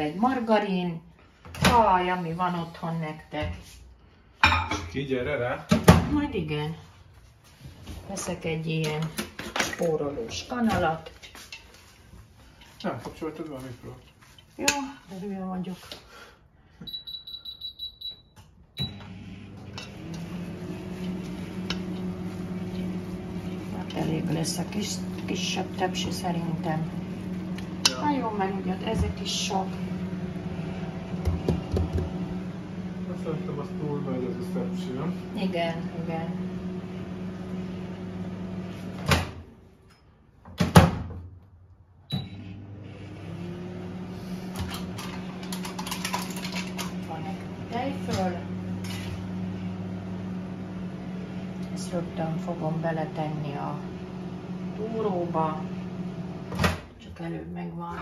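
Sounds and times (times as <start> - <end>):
dishes clinking: 4.4 - 5.0
microwave high beeps: 16.8 - 19.4, 42.1 - 42.6
microwave humming: 16.8 - 39.6, 42.0 - 57.0.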